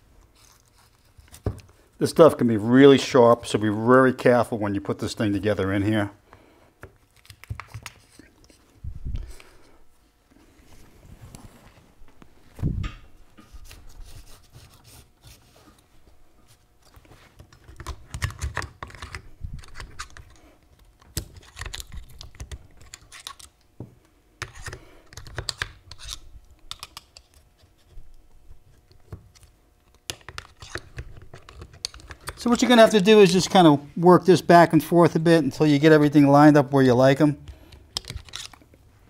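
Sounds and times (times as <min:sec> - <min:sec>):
metal parts clicking and scraping: 0:37.9 - 0:38.6.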